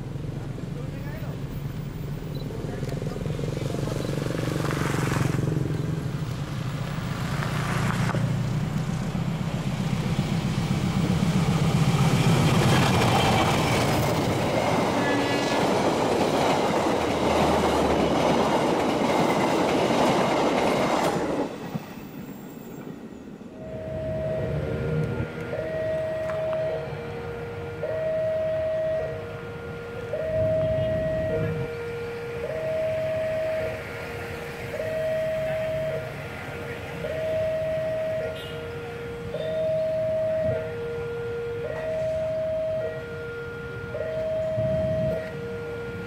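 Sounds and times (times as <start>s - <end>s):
diesel locomotive engine drone: 0.0s - 46.0s
train wheels clattering on rails: 9.8s - 23.0s
train horn: 14.9s - 15.7s, 23.6s - 46.0s.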